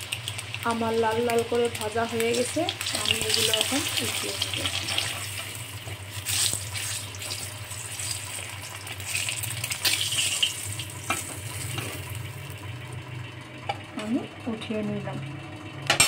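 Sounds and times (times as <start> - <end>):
eggs sizzling in hot oil: 0.0 - 13.0.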